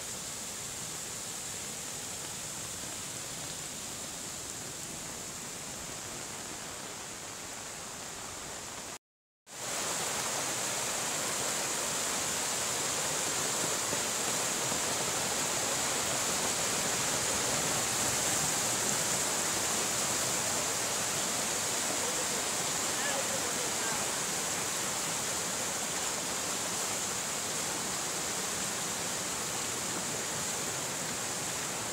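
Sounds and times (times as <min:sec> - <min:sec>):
floodwater rushing: 0:09.6 - 0:31.9.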